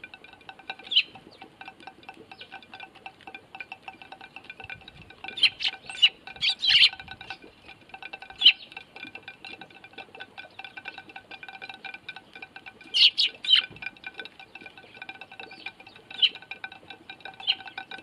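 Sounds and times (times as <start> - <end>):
birds pecking seed off plate: 0.0 - 18.0
sparrow chirps: 0.9 - 1.4, 5.4 - 7.4, 13.0 - 13.7, 17.4 - 17.7.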